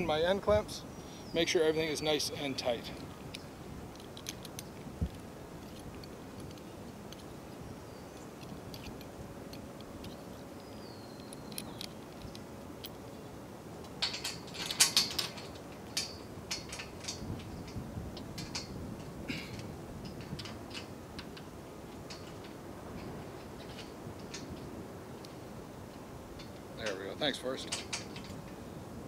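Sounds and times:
metal clamp hardware clicking: 8.2s - 13.0s.

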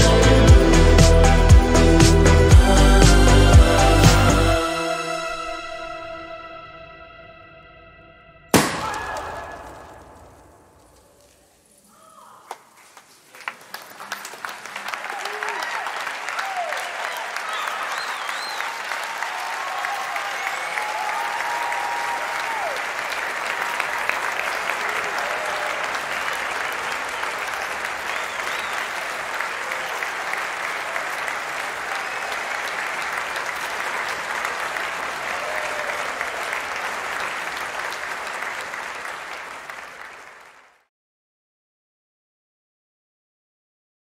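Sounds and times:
crowd applauding and cheering: 12.5s - 40.9s.

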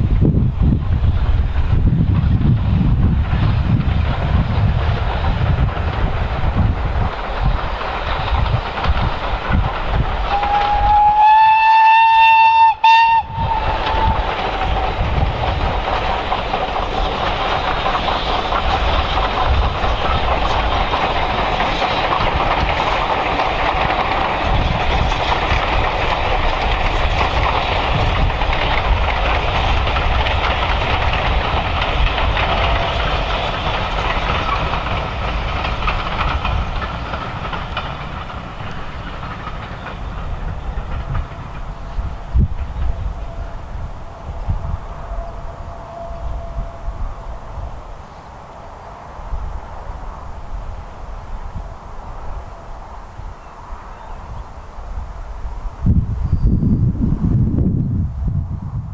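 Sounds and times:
steam locomotive running past: 0.0s - 58.9s
carriages rattling over rail joints: 0.7s - 54.4s
steam whistle: 10.3s - 14.3s, 42.9s - 47.4s.

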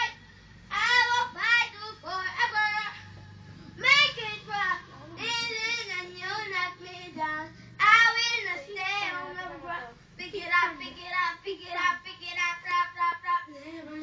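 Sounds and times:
child singing: 3.8s - 14.0s.

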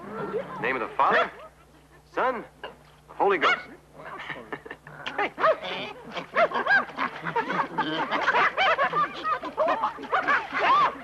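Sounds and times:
creatures crying and chattering: 5.3s - 11.0s.

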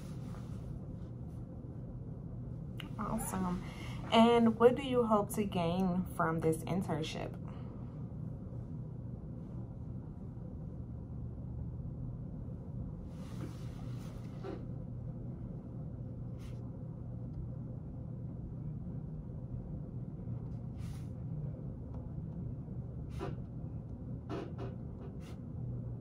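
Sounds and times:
low room hum: 0.0s - 26.0s.

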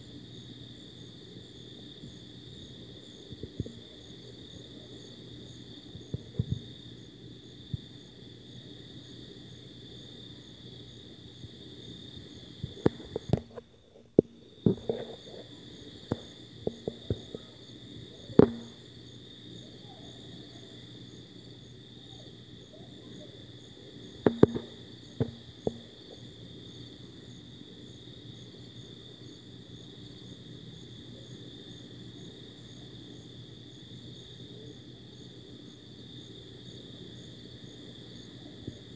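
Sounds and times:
crickets trilling: 0.0s - 38.9s
clicks and knocks: 24.2s - 25.9s.

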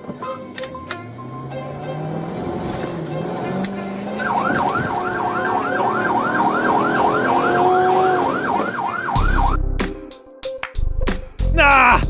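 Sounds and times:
police siren yelping: 0.3s - 9.6s.

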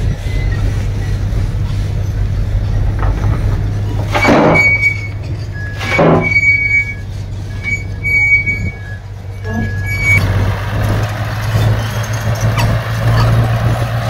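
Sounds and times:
diesel machinery rumbling: 0.0s - 14.0s
thin high squeals: 4.0s - 10.2s.

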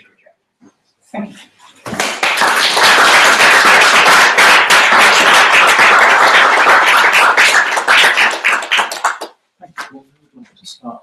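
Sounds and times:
audience applauding: 1.9s - 9.4s.

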